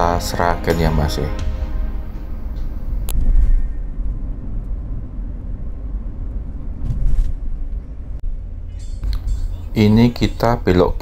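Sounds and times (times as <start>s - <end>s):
vehicle engine and road noise: 1.4s - 10.8s.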